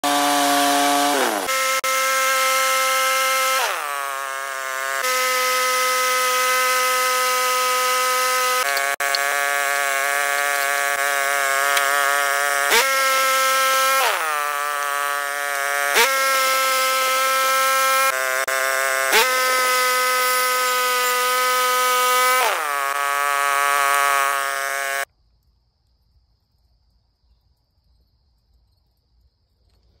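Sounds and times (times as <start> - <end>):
bandsaw cutting wood whine: 0.0 - 25.1
sawmill engine running: 0.0 - 25.1
sharp clicks: 8.6 - 9.4.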